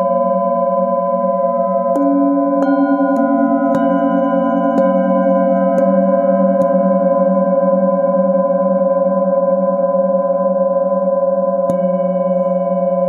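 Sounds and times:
metal singing bowl ringing: 0.0s - 13.0s
mallet tapping bowl: 1.9s - 7.4s, 11.7s - 12.9s.

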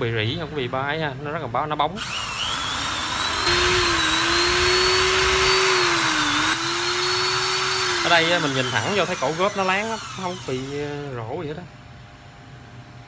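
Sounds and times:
electric drill motor whine: 2.0s - 11.2s.

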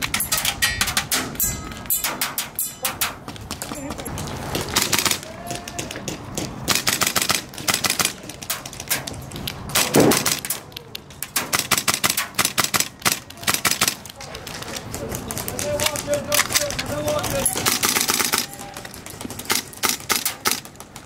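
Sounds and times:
airsoft rifle firing bursts: 4.8s - 5.2s, 6.7s - 8.3s, 11.4s - 14.0s, 17.6s - 18.6s, 19.4s - 20.7s.

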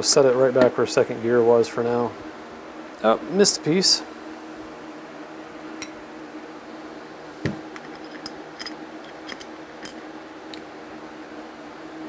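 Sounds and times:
steady low hum: 0.0s - 12.0s
metal parts clicking and clinking: 7.8s - 10.0s.

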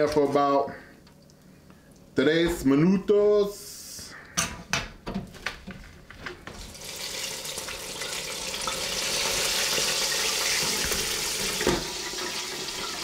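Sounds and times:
oil sizzling and bubbling: 6.5s - 13.0s.

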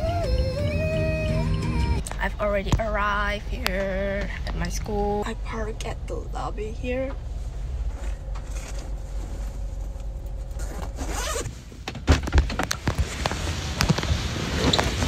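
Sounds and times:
low steady rumble in car: 0.0s - 15.0s
fabric rustling: 7.3s - 11.8s
zipper: 10.6s - 11.5s.

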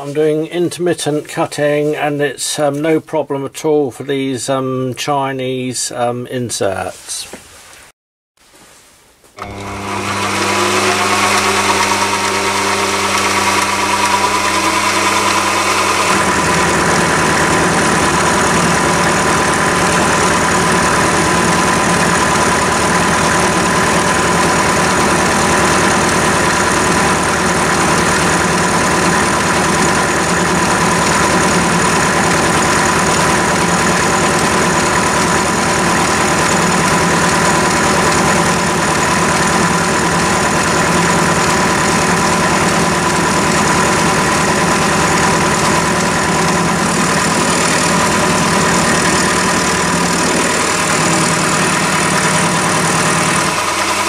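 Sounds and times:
lathe running: 9.4s - 54.0s
high whine: 42.1s - 54.0s.

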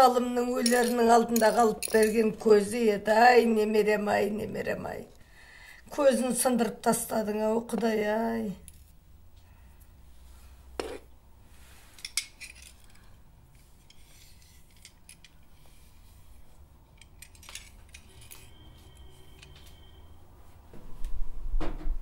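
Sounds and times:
china fragments clinking: 0.4s - 2.4s, 12.0s - 13.1s, 13.8s - 15.5s, 16.9s - 19.6s.

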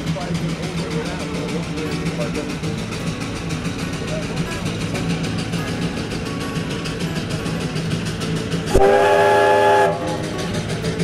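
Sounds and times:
steam engine exhaust beat: 0.0s - 11.0s
steam whistle blast: 8.7s - 10.2s.

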